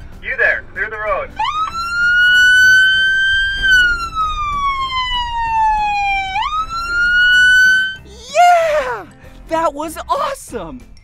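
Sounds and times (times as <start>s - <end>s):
police siren wailing: 1.2s - 8.6s.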